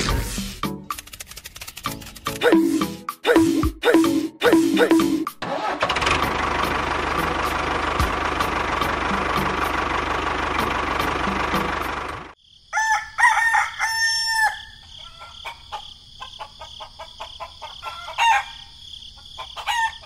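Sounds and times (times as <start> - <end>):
tractor engine running: 4.5 - 12.4
rooster crowing: 12.7 - 15.9, 16.6 - 18.7, 19.4 - 20.0.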